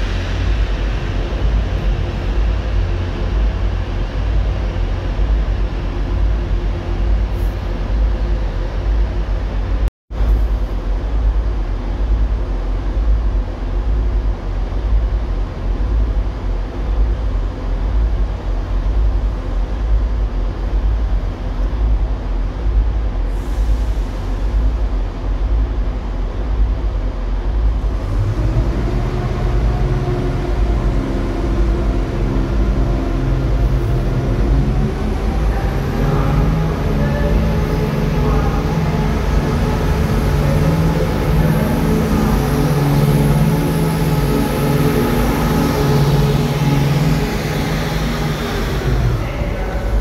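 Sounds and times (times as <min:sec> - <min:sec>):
diesel engines idling: 0:27.6 - 0:50.0.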